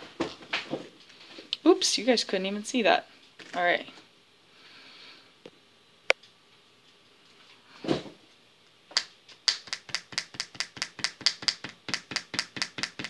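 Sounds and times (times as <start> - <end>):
eraser tapping on paper: 9.5 - 13.0.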